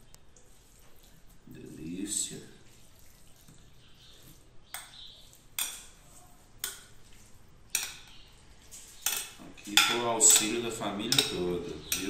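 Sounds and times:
spoon knocking and scraping container: 0:04.7 - 0:12.0.

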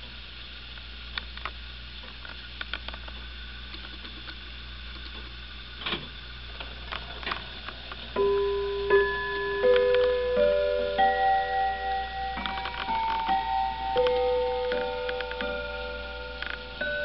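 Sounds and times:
clock chime notes ringing: 0:08.1 - 0:17.0.

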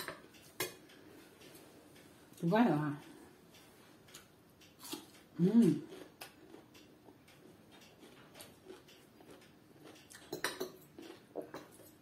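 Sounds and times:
metal spoon clinking on glass dish: 0:10.2 - 0:10.9.

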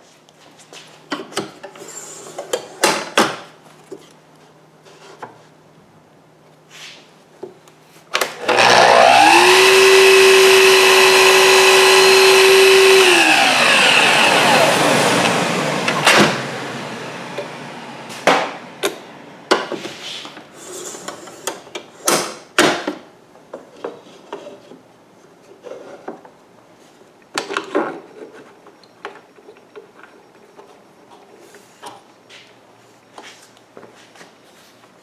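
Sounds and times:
miter saw winding down: 0:08.4 - 0:18.1.

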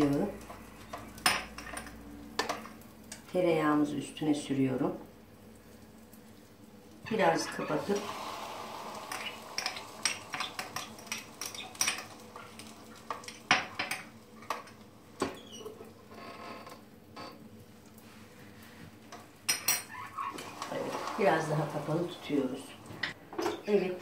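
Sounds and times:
omelette sizzling: 0:00.0 - 0:23.2
kitchen utensils clicking: 0:08.9 - 0:14.8.

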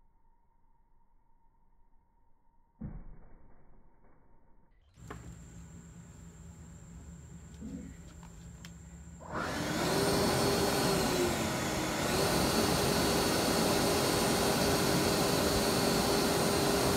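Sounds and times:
electric blower motor whining: 0:09.2 - 0:16.9.

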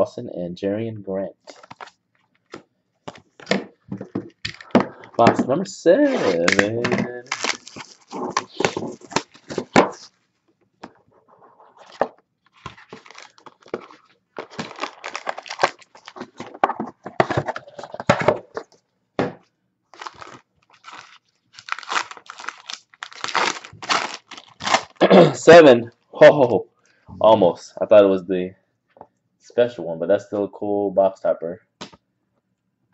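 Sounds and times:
wrappers tearing and crinkling: 0:06.0 - 0:10.1, 0:11.8 - 0:18.6, 0:19.9 - 0:25.1.

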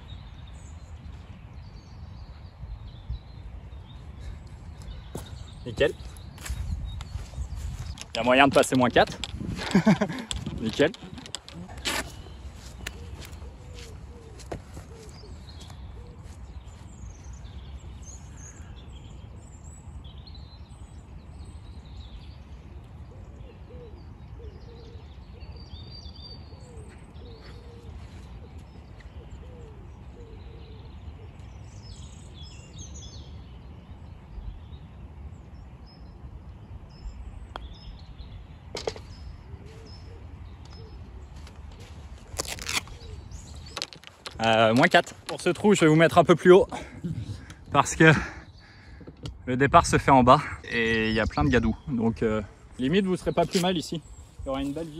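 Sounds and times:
wind rumble on microphone: 0:00.0 - 0:24.4, 0:30.9 - 0:44.4, 0:49.0 - 0:54.9
birds chirping: 0:00.0 - 0:54.9.

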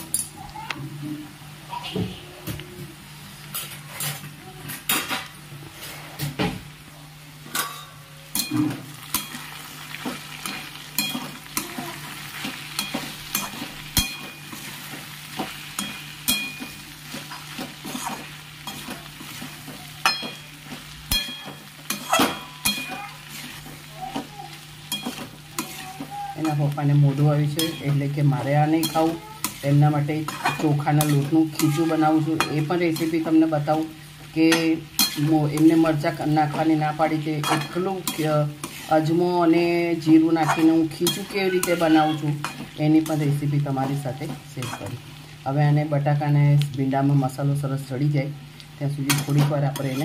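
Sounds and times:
light sizzle of frying: 0:00.0 - 0:50.0
spatula scraping a pan: 0:07.7 - 0:33.4, 0:34.5 - 0:45.0, 0:49.1 - 0:50.0.

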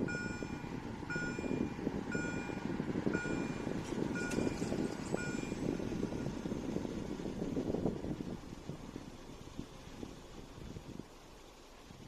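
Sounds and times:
level crossing warning beeps: 0:00.0 - 0:05.7.

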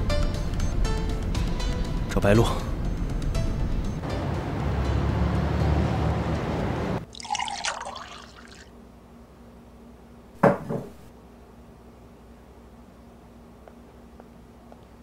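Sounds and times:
tea pouring into a cup: 0:07.0 - 0:08.7
sharp knock: 0:10.4 - 0:11.1.

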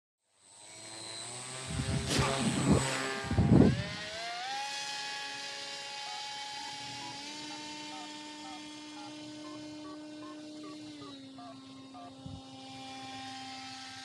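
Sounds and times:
model motor and propeller whine: 0:00.2 - 0:14.0
wind noise on microphone: 0:01.6 - 0:04.2, 0:12.2 - 0:12.5.

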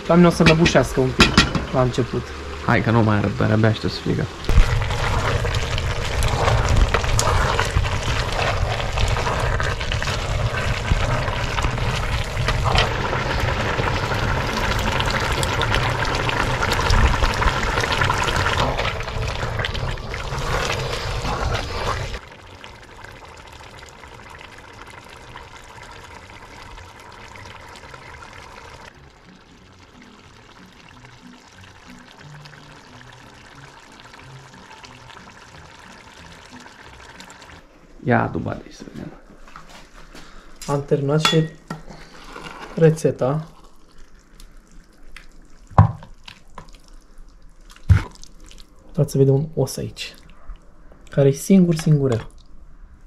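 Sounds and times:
food sizzling in a pot: 0:00.0 - 0:37.7, 0:40.6 - 0:48.7
wooden spoon stirring wet food: 0:04.8 - 0:22.2.

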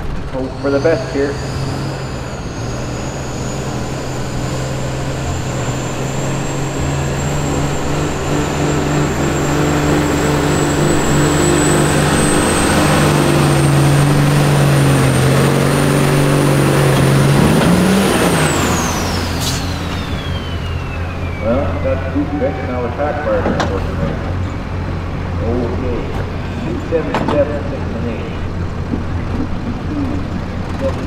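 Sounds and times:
diesel truck engine under load: 0:00.0 - 0:31.0
turbo whistle: 0:18.8 - 0:22.1.

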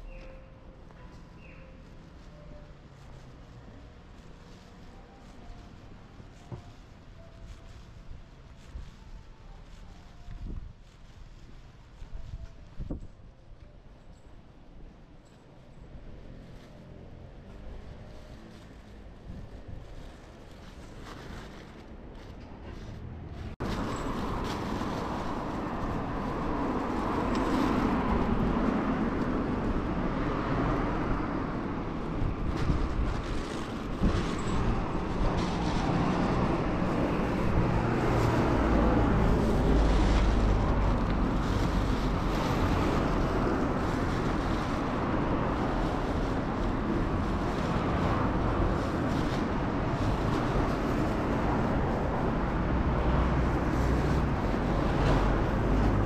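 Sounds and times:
cars passing on a street: 0:00.0 - 0:56.0.

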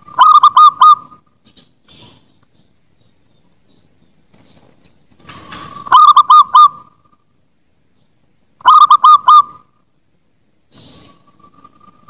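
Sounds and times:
dove cooing: 0:00.0 - 0:01.3, 0:05.6 - 0:07.0, 0:08.6 - 0:09.7.

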